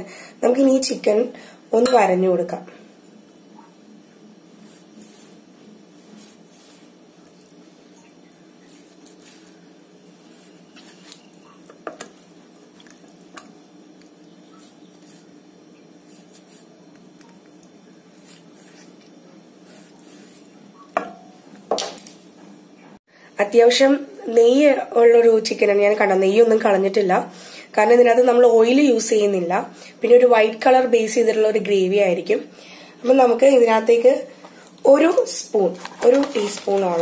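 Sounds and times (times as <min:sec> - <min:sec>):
knife cutting raw meat: 0:10.3 - 0:11.8.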